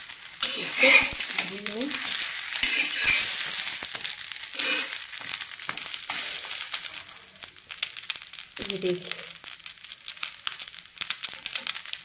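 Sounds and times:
ghee sizzling on a pan: 0:00.0 - 0:12.0
clicks and scrapes on a pan: 0:00.4 - 0:06.6.

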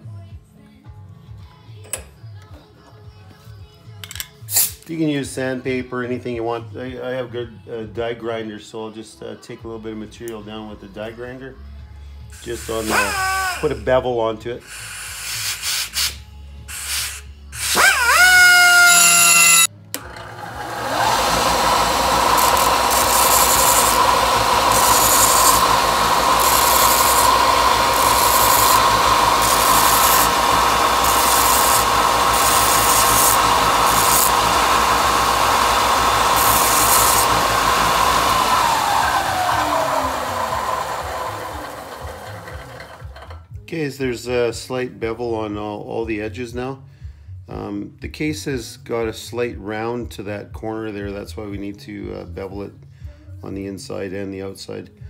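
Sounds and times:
die grinder whining: 0:12.4 - 0:13.7, 0:17.6 - 0:43.4
sander spinning down: 0:12.7 - 0:13.6, 0:17.6 - 0:43.4
belt sander whining: 0:12.7 - 0:13.7, 0:17.6 - 0:43.3
metal pressed on abrasive hissing: 0:14.6 - 0:17.8, 0:22.4 - 0:35.0.

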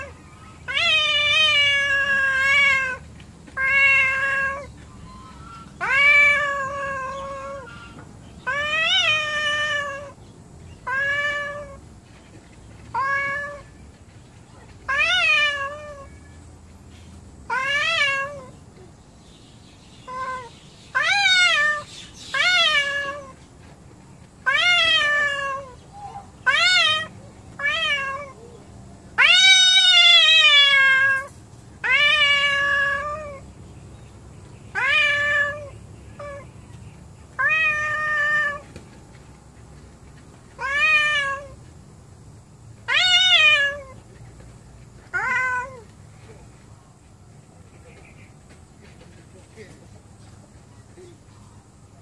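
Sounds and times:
cat yowling: 0:00.0 - 0:03.0, 0:03.6 - 0:10.2, 0:10.8 - 0:11.8, 0:12.9 - 0:13.7, 0:14.9 - 0:16.2, 0:17.5 - 0:18.6, 0:20.1 - 0:23.4, 0:24.4 - 0:28.6, 0:29.2 - 0:33.4, 0:34.7 - 0:36.5, 0:37.4 - 0:38.6, 0:40.6 - 0:41.6, 0:42.9 - 0:44.0, 0:45.1 - 0:45.8.

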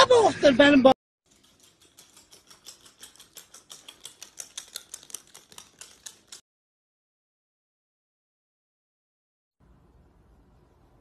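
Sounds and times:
pet claws clicking on tile: 0:01.3 - 0:06.4.

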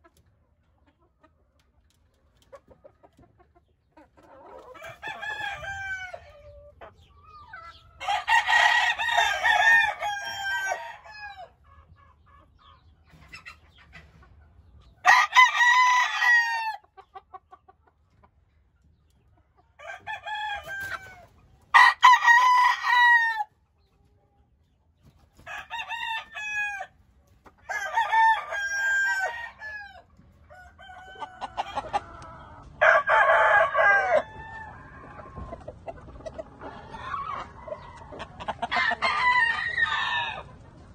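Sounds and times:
roosters crowing: 0:04.4 - 0:06.7, 0:08.0 - 0:11.6, 0:15.0 - 0:16.9, 0:19.8 - 0:23.5, 0:25.3 - 0:35.8, 0:36.4 - 0:40.6.

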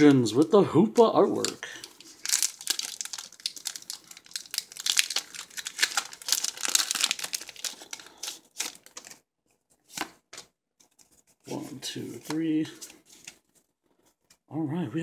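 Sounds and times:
foil wrapper crinkling and tearing: 0:01.2 - 0:09.2.

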